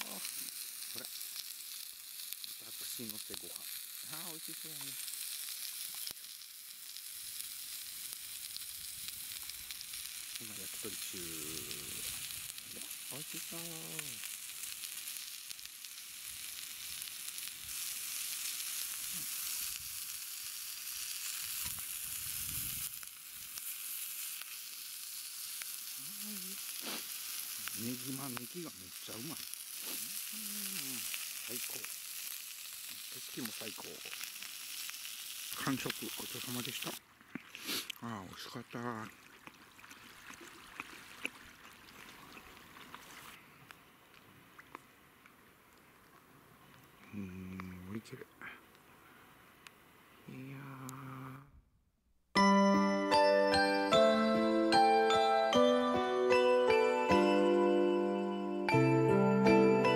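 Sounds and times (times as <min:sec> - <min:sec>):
skewers sizzling on a grill pan: 0:00.0 - 0:37.0, 0:37.6 - 0:39.0
soft outdoor hiss: 0:00.0 - 0:51.6.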